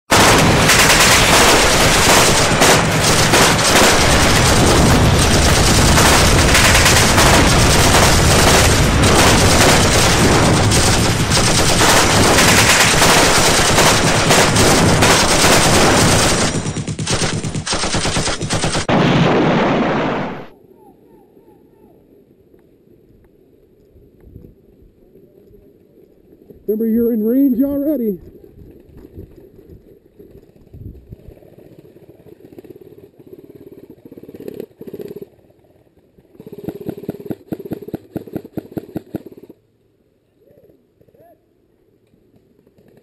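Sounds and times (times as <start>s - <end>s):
automatic gunfire: 0.1s - 20.5s.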